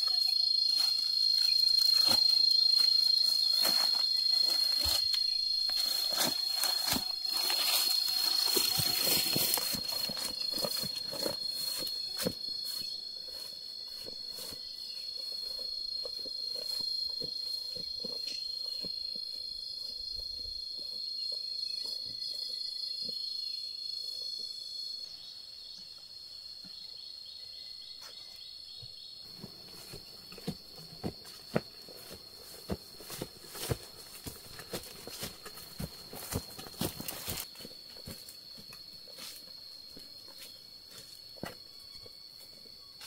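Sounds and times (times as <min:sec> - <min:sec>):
high-pitched insect drone: 0:00.0 - 0:25.3.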